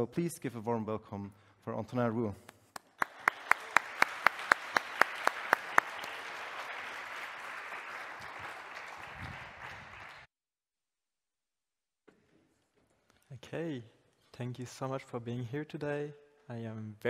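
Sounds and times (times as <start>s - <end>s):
loud single person clapping: 2.4s - 10.3s
audience applauding: 2.8s - 10.3s.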